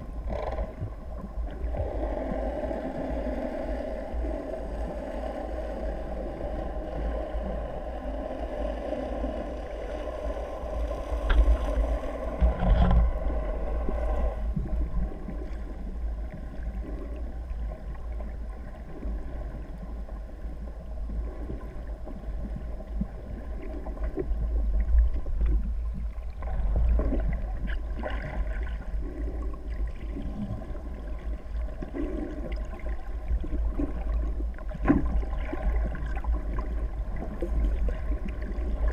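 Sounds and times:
boat engine drone underwater: 0:00.0 - 0:38.9
muffled underwater rumble: 0:00.0 - 0:38.9
faint clicks and knocks: 0:11.1 - 0:13.2.

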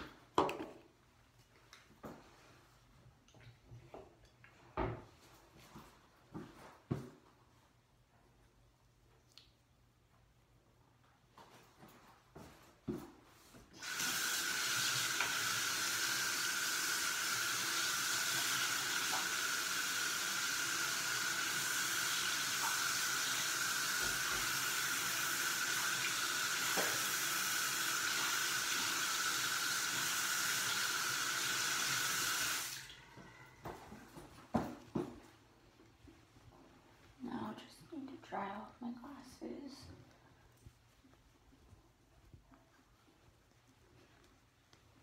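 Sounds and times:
tap water running into sink: 0:13.8 - 0:33.0.

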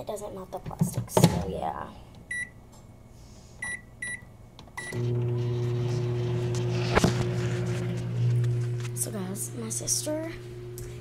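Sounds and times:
microwave keypad beeping: 0:02.3 - 0:02.6, 0:03.6 - 0:05.2
microwave oven humming: 0:03.6 - 0:11.0.

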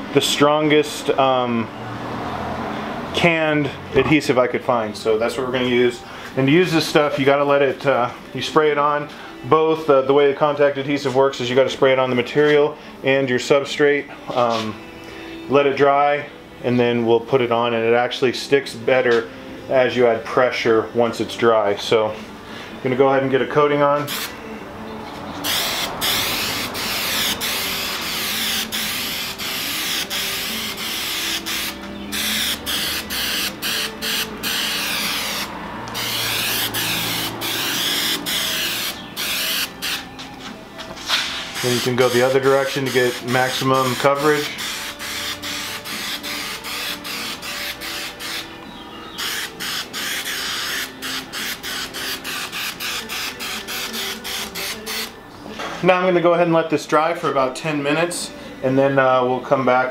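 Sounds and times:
aerosol spray can hissing: 0:25.4 - 0:40.0, 0:41.1 - 0:48.5, 0:49.2 - 0:55.1.

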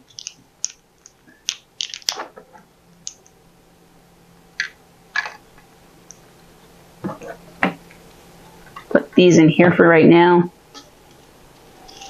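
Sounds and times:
plastic pieces clicking and tapping: 0:00.1 - 0:02.2.

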